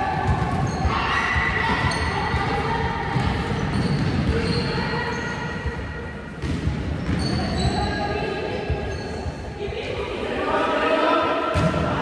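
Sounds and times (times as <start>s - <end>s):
basketballs bouncing on wooden floor: 0.0s - 5.8s, 6.4s - 7.9s
players' voices: 0.0s - 12.0s.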